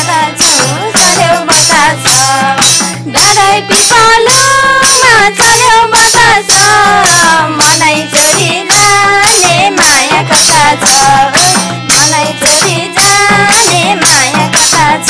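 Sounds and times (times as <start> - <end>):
hand drum beat: 0.0 - 15.0
harmonium melody: 0.0 - 15.0
people singing: 0.0 - 15.0.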